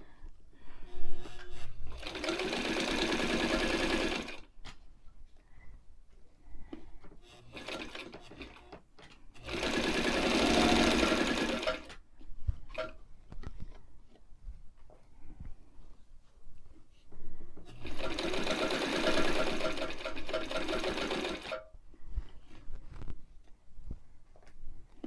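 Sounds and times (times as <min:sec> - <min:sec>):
sewing machine stitching: 0:01.2 - 0:04.5, 0:07.2 - 0:08.8, 0:09.4 - 0:12.0, 0:17.7 - 0:21.7
fabric clicks and rustles: 0:22.3 - 0:23.3.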